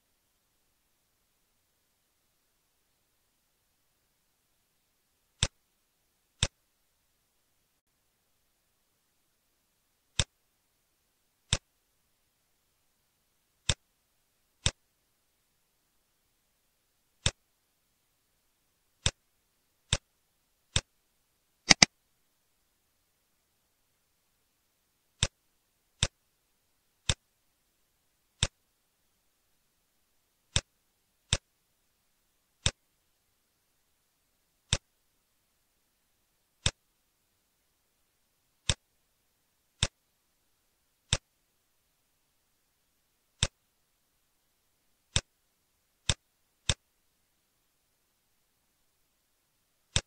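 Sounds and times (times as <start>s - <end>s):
computer mouse button clicking: 21.7s - 21.9s.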